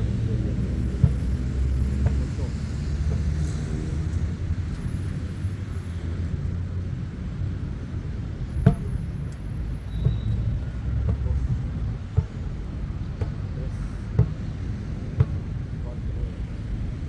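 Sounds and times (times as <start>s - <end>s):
steady low rumble: 10.5s - 17.0s.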